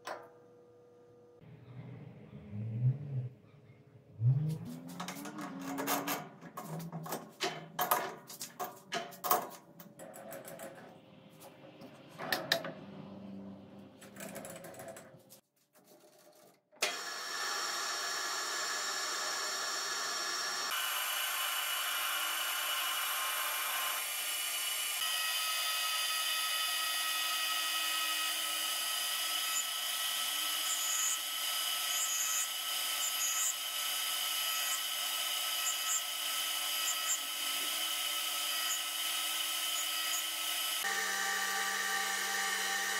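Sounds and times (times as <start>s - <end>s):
insert cutting metal rod: 4.2s - 10.6s
metal lathe whining: 16.9s - 42.9s.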